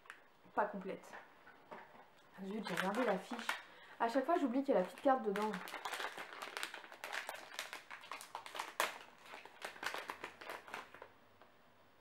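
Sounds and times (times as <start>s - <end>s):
cardboard and wrapper crinkles: 2.4s - 11.2s.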